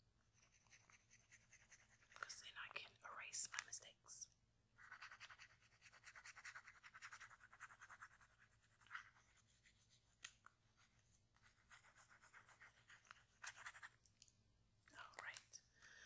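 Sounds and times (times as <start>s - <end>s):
pencil scratching on paper: 0.3s - 2.3s, 4.8s - 10.2s, 10.8s - 14.0s.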